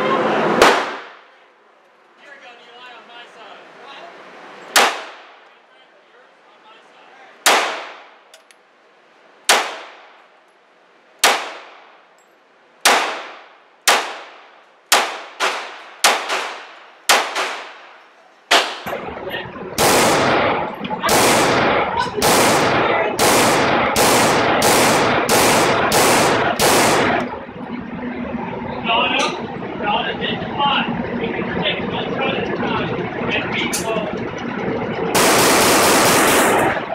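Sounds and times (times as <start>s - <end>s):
pistol shots echoing indoors: 21.1s - 27.2s.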